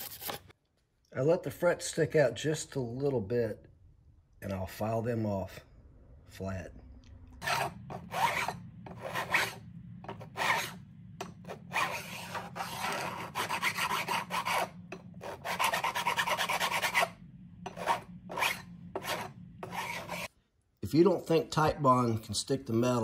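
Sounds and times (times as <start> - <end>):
metal file rasping on frets: 7.4 - 20.3.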